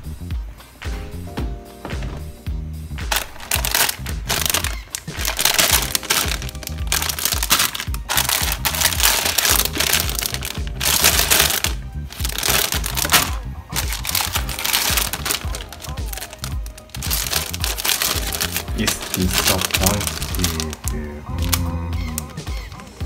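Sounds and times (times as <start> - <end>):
background music: 0.0 - 23.0
cellophane bags crinkling: 3.1 - 22.9.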